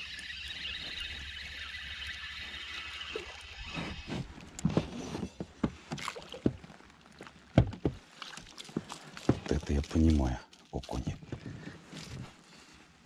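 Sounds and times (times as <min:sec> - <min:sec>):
fishing reel whirring: 0:00.0 - 0:04.4
water splashing: 0:00.0 - 0:04.6, 0:05.8 - 0:12.1.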